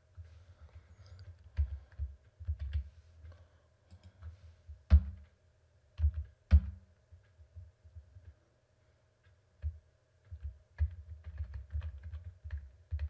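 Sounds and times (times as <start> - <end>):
computer keyboard clicks: 1.0 - 2.9, 9.6 - 13.0.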